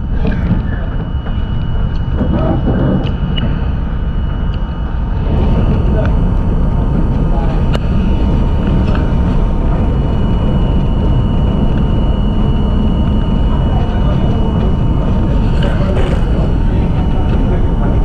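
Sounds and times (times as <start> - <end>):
high whine: 0.0 - 18.0
train wheels rumbling on rail: 5.1 - 18.0.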